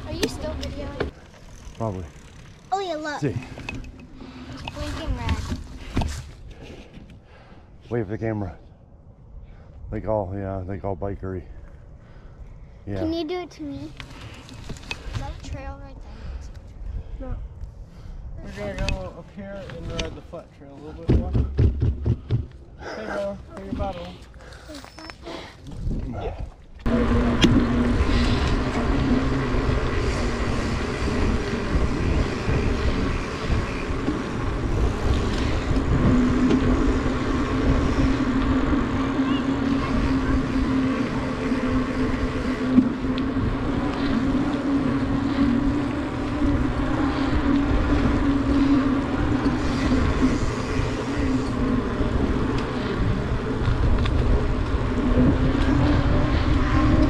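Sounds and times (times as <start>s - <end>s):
bike tyres humming on asphalt: 0.0s - 57.0s
wind on microphone: 25.7s - 57.0s.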